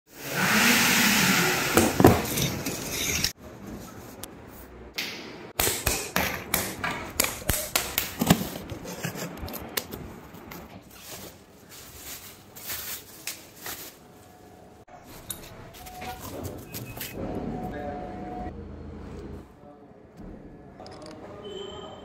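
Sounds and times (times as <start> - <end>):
plastic wrap and cardboard rustling: 8.2 - 17.2.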